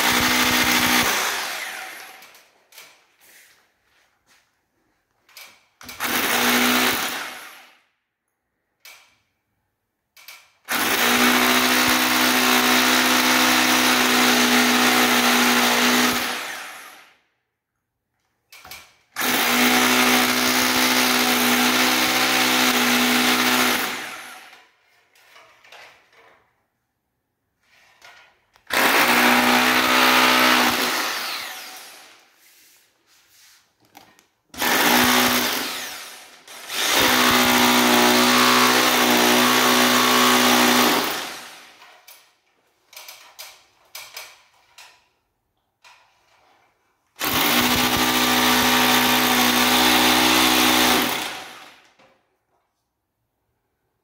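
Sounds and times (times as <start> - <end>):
hammer drill boring into wall: 0.0 - 3.0, 5.8 - 7.8, 10.2 - 17.2, 18.5 - 25.4, 27.7 - 32.4, 34.5 - 42.3, 47.2 - 52.0.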